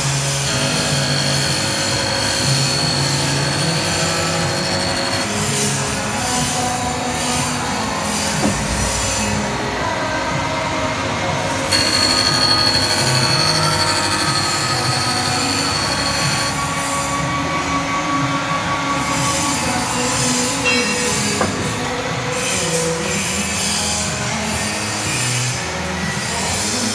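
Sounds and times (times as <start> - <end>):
grinding wheel screeching on steel blade: 0.0 - 9.5, 11.6 - 17.3, 19.0 - 26.9
high loud squeal: 11.7 - 17.3.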